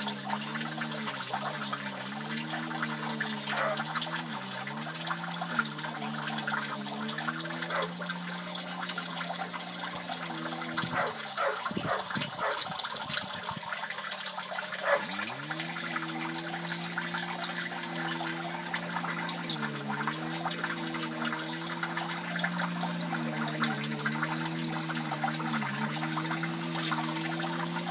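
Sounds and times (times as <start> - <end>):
water pouring into fish tank: 0.0 - 27.9
low machine hum: 14.3 - 27.9.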